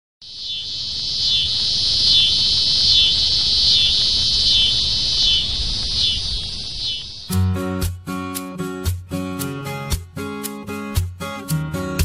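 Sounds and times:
falling insect chirr: 0.2 - 7.4
shrill insect chorus: 0.2 - 7.5.

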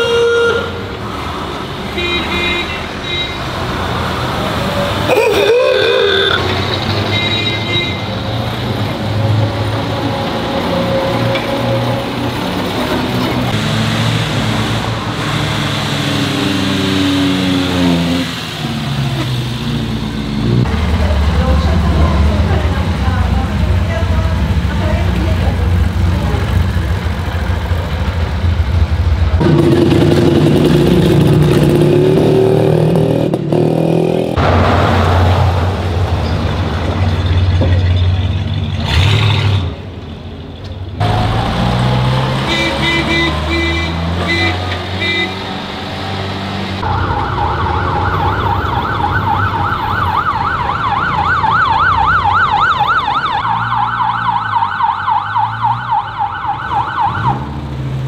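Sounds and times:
vehicle engines driving past: 0.0 - 58.0
siren warbling: 46.8 - 57.5.

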